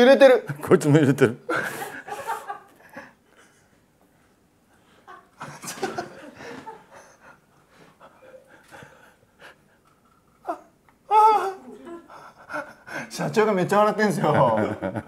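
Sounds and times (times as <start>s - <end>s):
men stifling laughter: 1.5s - 3.1s, 5.1s - 7.2s, 14.2s - 15.0s.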